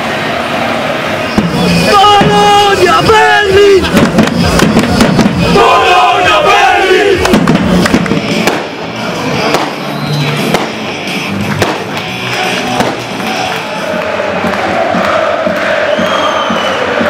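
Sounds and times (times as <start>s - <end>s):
football crowd noise: 0.0s - 17.0s
sharp bangs: 3.8s - 5.7s, 7.2s - 13.5s.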